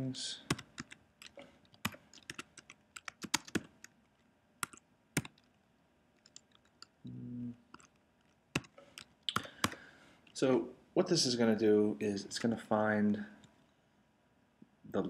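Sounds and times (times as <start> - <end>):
computer keyboard typing: 0.5 - 5.6, 6.2 - 7.0, 7.7 - 9.9, 12.3 - 12.6.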